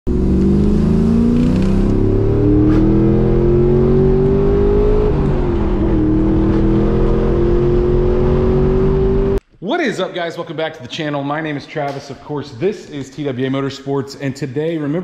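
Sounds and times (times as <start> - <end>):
car engine heard from inside cabin: 0.1 - 9.4.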